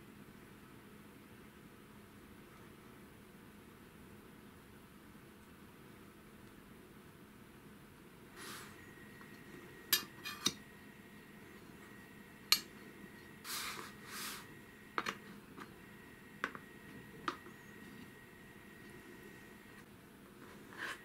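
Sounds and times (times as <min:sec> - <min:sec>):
soft brushing sounds: 0:08.4 - 0:09.8, 0:13.2 - 0:14.6, 0:20.3 - 0:21.0.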